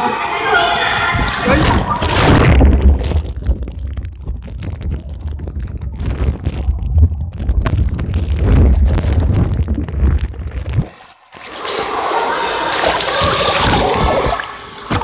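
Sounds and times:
plastic bag rubbing microphone: 0:01.1 - 0:12.0, 0:12.8 - 0:15.0
muffled underwater rumble: 0:01.2 - 0:11.0.

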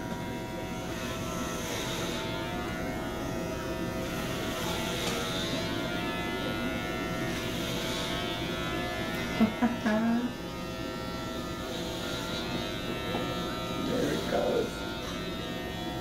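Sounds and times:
electric hair clippers buzzing: 0:00.0 - 0:16.0.

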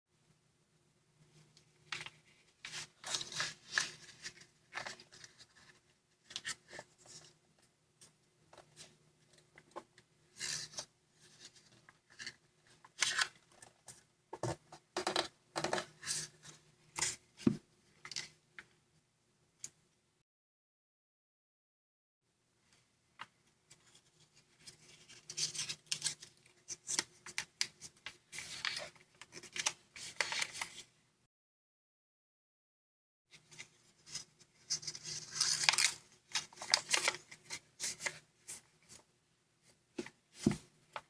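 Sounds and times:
paper rustling and crackling: 0:01.9 - 0:07.3, 0:23.7 - 0:30.9, 0:33.5 - 0:39.0.

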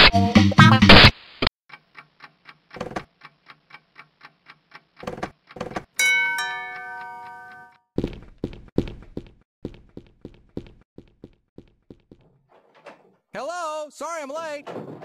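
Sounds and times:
clock ticking: 0:01.7 - 0:07.8
bell chime: 0:06.0 - 0:07.8.

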